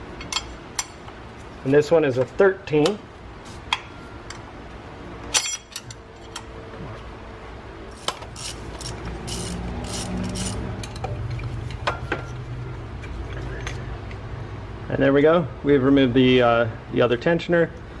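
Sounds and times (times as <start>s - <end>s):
wrench metallic clicks: 8.0s - 11.1s.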